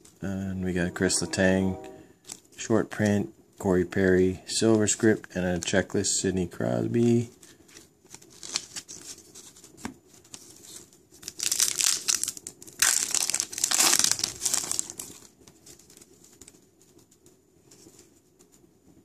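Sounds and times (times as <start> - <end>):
plastic wrapper tearing and crinkling: 7.7 - 16.6.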